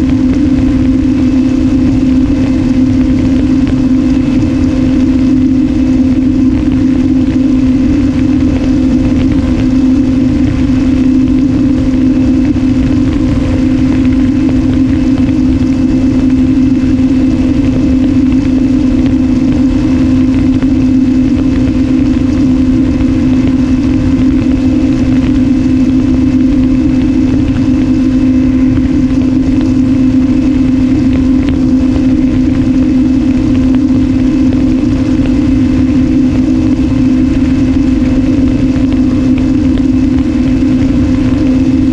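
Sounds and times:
electric motor and propeller: 0.0s - 41.9s
wind rushing over microphone: 0.0s - 41.9s.

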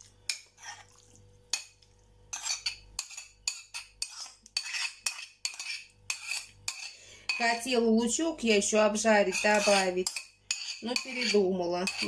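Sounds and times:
spoon scraping and clinking plate: 2.3s - 7.4s, 9.2s - 12.0s.

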